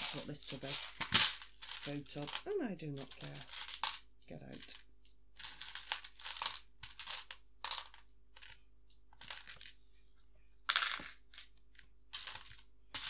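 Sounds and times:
plastic pieces clattering in a tub: 0:00.0 - 0:04.0, 0:05.4 - 0:08.6, 0:12.1 - 0:13.0.

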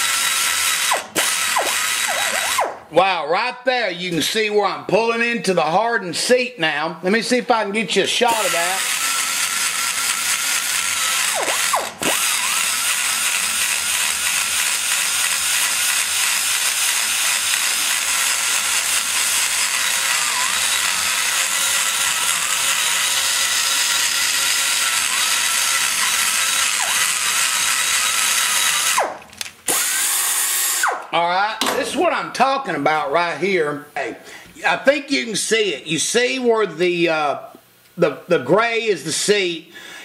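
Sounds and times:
die grinder whining and grinding: 0:00.0 - 0:02.8, 0:08.3 - 0:31.0.

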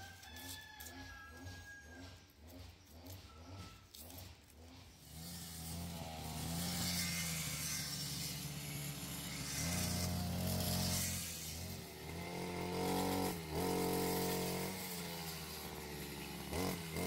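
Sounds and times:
engine running: 0:01.3 - 0:17.0.

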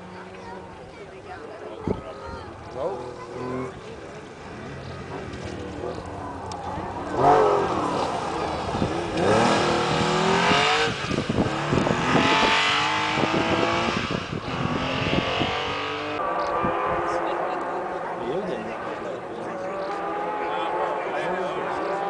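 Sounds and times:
exhaust crackles: 0:02.5 - 0:22.0
car engine revving hard: 0:07.0 - 0:18.1.

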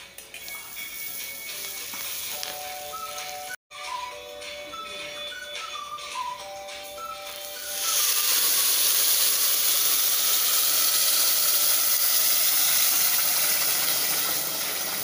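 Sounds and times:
water hissing on hot pot: 0:07.3 - 0:15.0.

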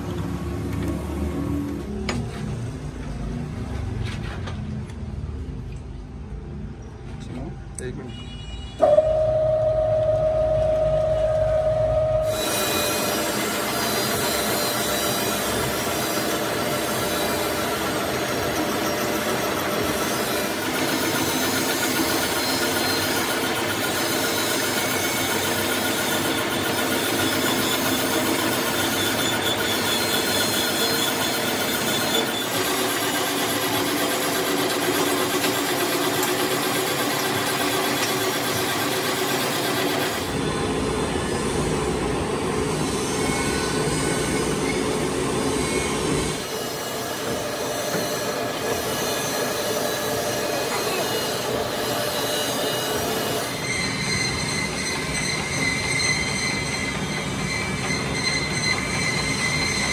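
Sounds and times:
metal lathe hum and gear whine: 0:08.8 - 0:59.9
grinding hiss of cutting steel: 0:12.3 - 0:17.6.

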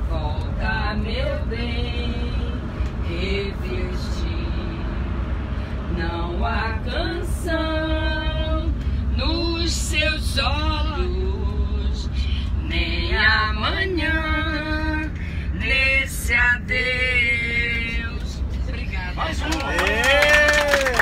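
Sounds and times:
low rumble of moving coach: 0:00.0 - 0:21.0.

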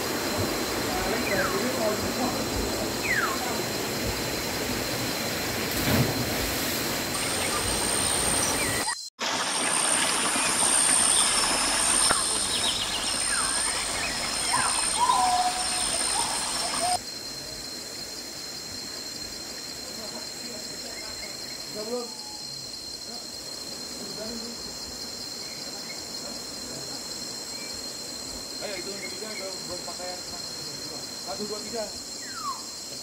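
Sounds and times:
high insect whine: 0:00.0 - 0:33.0
birds chirping: 0:07.1 - 0:09.1, 0:10.0 - 0:17.0.

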